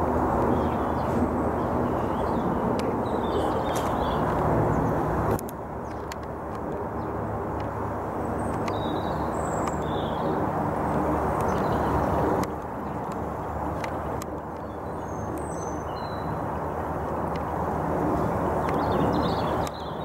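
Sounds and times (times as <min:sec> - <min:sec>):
small birds chirping: 0:00.4 - 0:20.0
faint clicks: 0:05.3 - 0:06.8, 0:08.4 - 0:08.8, 0:12.4 - 0:15.6.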